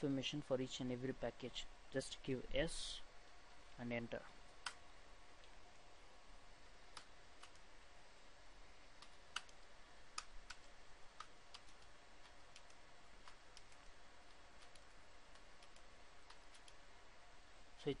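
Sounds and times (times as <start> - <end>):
computer keyboard keystrokes: 9.0 - 9.6, 10.2 - 16.8.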